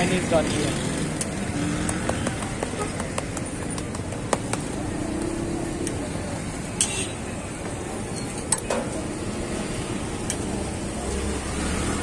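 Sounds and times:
street traffic hum: 0:00.0 - 0:12.0.

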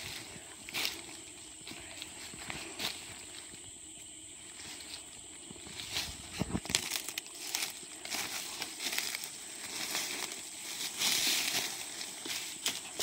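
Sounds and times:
footsteps crunching through dry leaves: 0:00.0 - 0:13.0
twigs snapping: 0:06.4 - 0:10.1.

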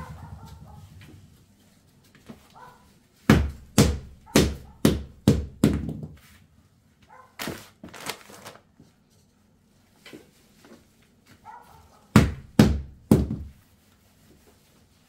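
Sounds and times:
rubber mallet thudding on wood: 0:03.3 - 0:06.2, 0:12.1 - 0:13.6.

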